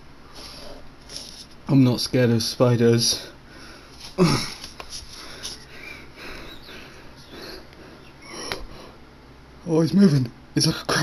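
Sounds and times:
soft breathing and sniffing: 3.2 - 9.0.

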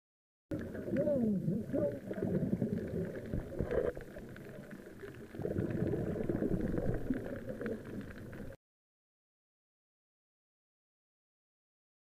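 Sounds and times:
muffled underwater rumbling: 0.5 - 8.6.

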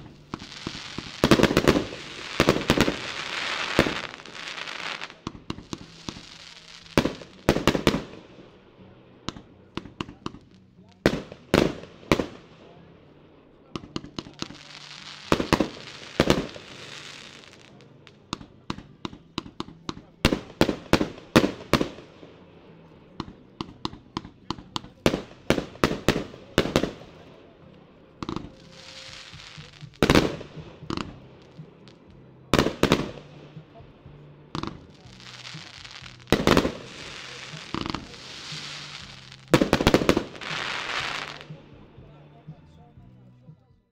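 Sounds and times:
hissing firework crackle: 0.0 - 8.4, 13.7 - 27.5, 28.2 - 33.8, 34.6 - 41.6
firework launch thumps and bursts: 34.5 - 41.6.

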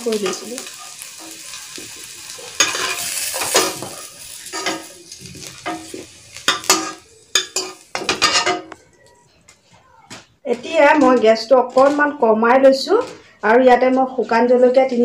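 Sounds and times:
oil sizzling: 0.0 - 9.1.

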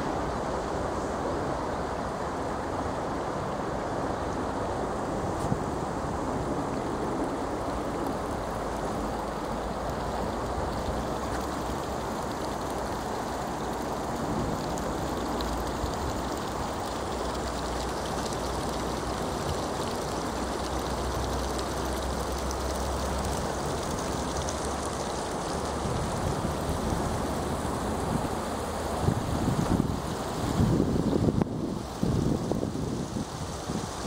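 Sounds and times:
river water rushing: 0.0 - 34.0.

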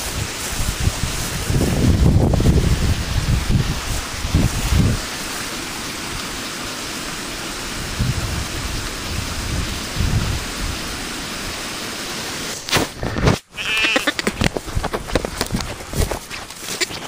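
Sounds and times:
wind on microphone: 0.0 - 5.4, 7.5 - 11.6, 12.8 - 13.5, 14.1 - 17.0.

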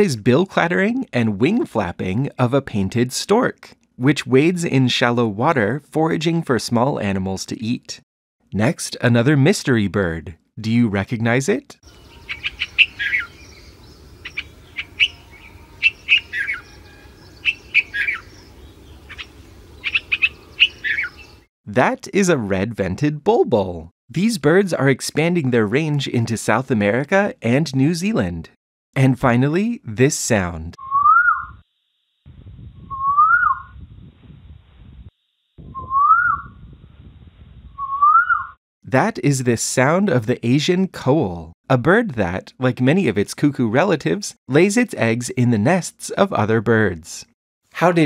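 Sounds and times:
bird chirping in bubbly phrases: 11.9 - 21.5, 30.8 - 31.6, 32.9 - 33.8, 35.6 - 36.6, 37.8 - 38.6
koel whistled call: 12.0 - 18.4, 30.8 - 31.6, 32.9 - 33.8, 35.8 - 36.6, 37.8 - 38.6.

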